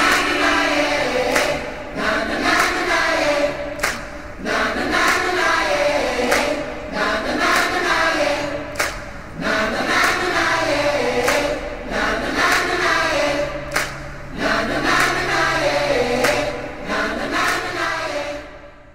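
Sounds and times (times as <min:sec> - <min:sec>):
sharp percussive hits: 0:00.0 - 0:04.4
choir singing slow melody: 0:00.0 - 0:18.9.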